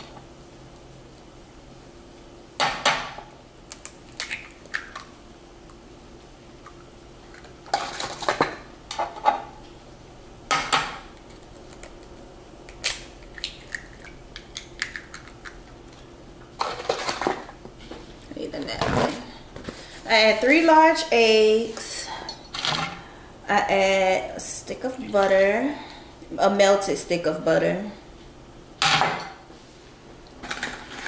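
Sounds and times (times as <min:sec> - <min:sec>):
eggs cracking against glass bowl: 0:03.7 - 0:05.1, 0:10.6 - 0:16.1.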